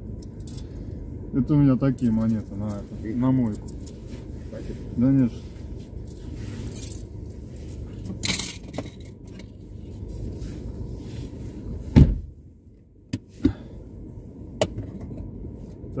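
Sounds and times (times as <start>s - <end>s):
heavy thump: 11.9s - 12.3s.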